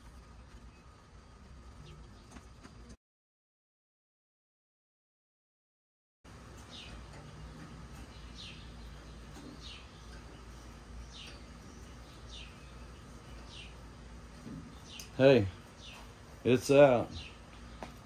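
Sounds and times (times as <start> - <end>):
bird chirping: 6.3 - 18.0
faint low hum: 6.3 - 18.0.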